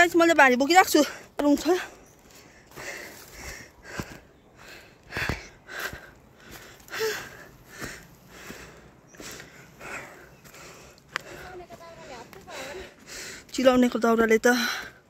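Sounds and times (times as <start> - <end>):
woman breathing hard: 1.9 - 13.5.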